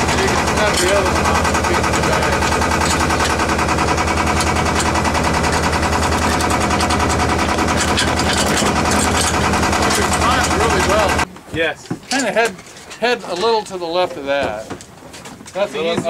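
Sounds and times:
boat engine droning: 0:00.0 - 0:11.3.

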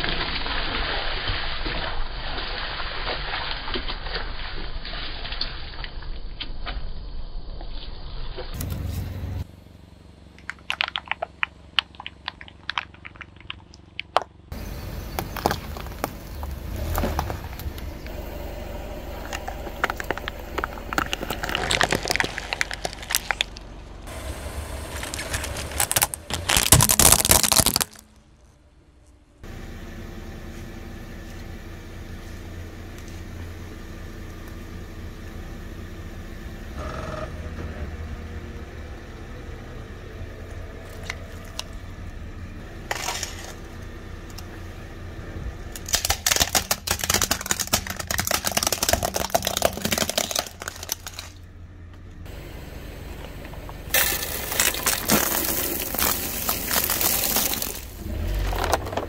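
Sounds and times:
car engine running: 0:08.5 - 0:59.0
tyre crushing objects: 0:19.3 - 0:23.6, 0:24.8 - 0:28.1, 0:45.8 - 0:51.4, 0:53.9 - 0:59.0.

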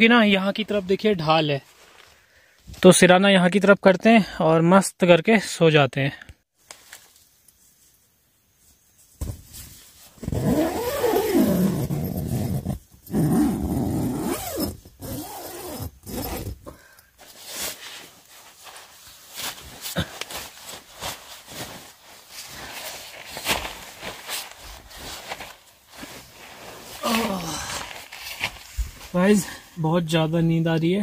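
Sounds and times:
nylon rustling: 0:09.2 - 0:29.6
tent zipper pulled: 0:10.2 - 0:16.7.

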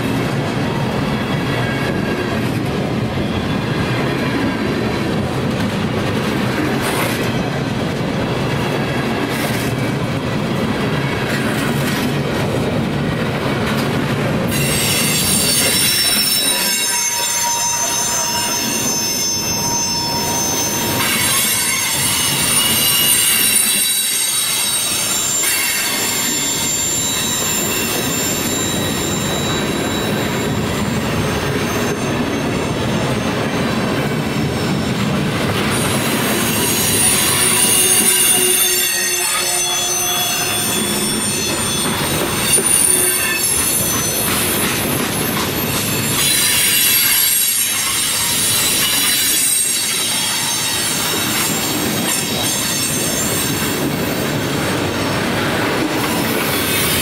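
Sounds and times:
freight train rumbling past: 0:00.0 - 0:57.0
steel wheels squealing: 0:14.4 - 0:57.0.

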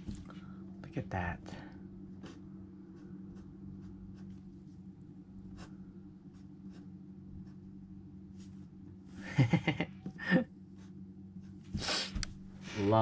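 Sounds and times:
steady low hum: 0:00.0 - 0:13.0
pen scratching on paper: 0:02.2 - 0:04.8, 0:05.5 - 0:05.7, 0:06.3 - 0:07.7.

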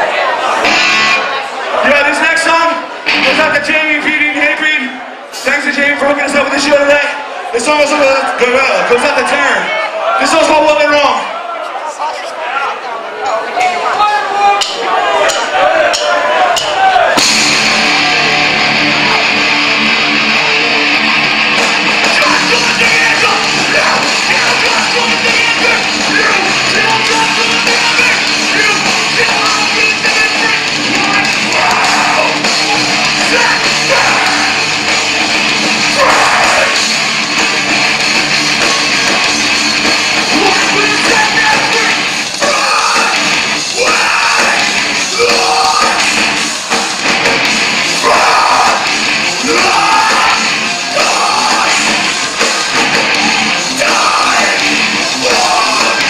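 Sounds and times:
drums: 0:00.0 - 0:11.3, 0:13.6 - 0:56.0
distorted electric guitars: 0:00.4 - 0:04.3, 0:16.4 - 0:56.0
shouted vocal: 0:21.8 - 0:37.2, 0:40.2 - 0:46.8, 0:47.8 - 0:56.0.

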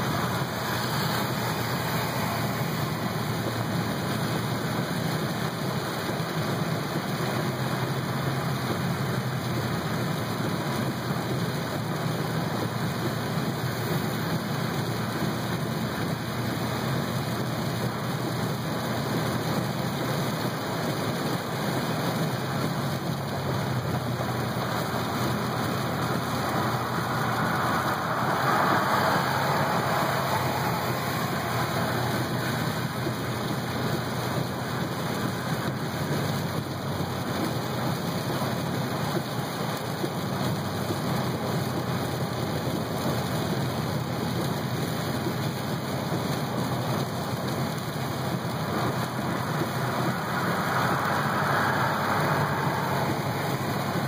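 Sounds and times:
heavy rain on car: 0:00.0 - 0:54.0
road noise: 0:00.0 - 0:54.0.

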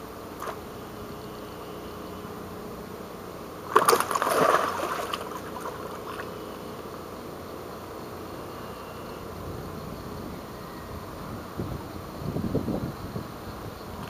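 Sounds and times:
fish splashing in water: 0:03.6 - 0:06.8.

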